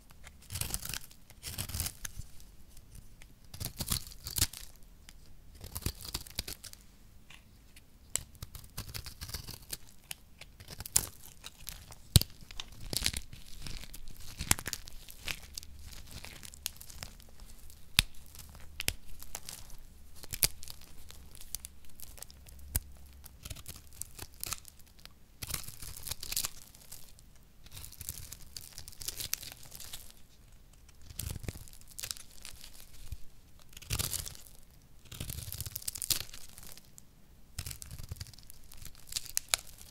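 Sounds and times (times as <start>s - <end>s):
knife shaving dry soap: 0.2s - 2.2s, 8.1s - 20.6s
soap crumbled between fingers: 8.1s - 37.0s, 37.6s - 39.9s.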